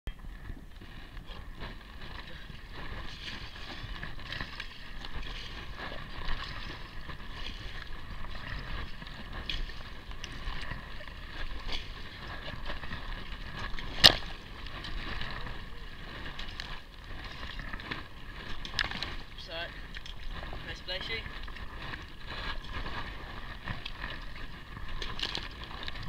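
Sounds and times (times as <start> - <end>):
wind rumble on microphone: 0.1 - 26.0
paddle splashing: 0.2 - 26.0
water slapping hull: 0.2 - 26.0.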